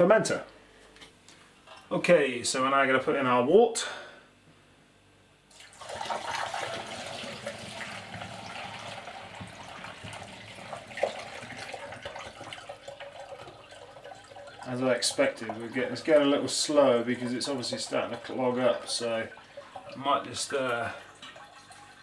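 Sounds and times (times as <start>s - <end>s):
liquid pouring and splashing: 5.5s - 22.0s.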